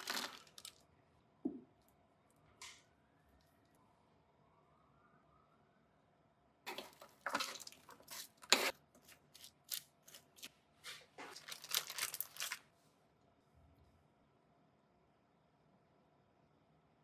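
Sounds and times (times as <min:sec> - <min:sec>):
parchment paper crinkling: 0:00.0 - 0:00.8, 0:11.2 - 0:12.7
spoon scraping a sheet pan: 0:06.7 - 0:10.5.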